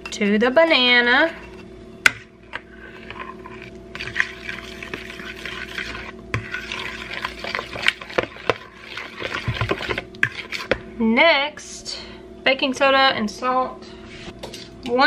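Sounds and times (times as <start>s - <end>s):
fork scraping wet mash: 2.5s - 10.8s.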